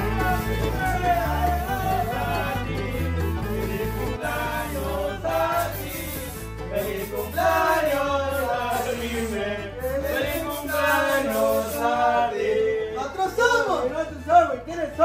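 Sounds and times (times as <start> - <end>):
steady bass beat: 0.0 - 4.4
man singing: 0.0 - 13.1.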